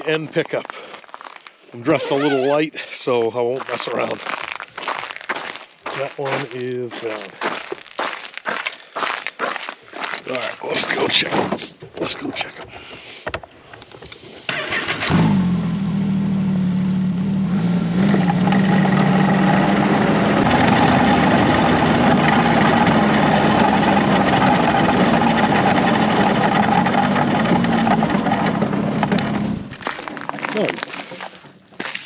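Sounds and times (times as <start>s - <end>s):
snowmobile engine running: 15.1s - 29.8s.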